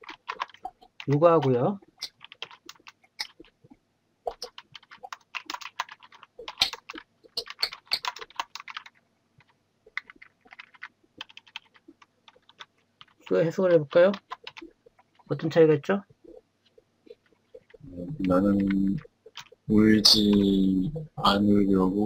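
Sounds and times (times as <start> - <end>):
computer keyboard typing: 0.0 - 3.6, 4.3 - 13.4, 14.0 - 15.3, 17.1 - 20.6.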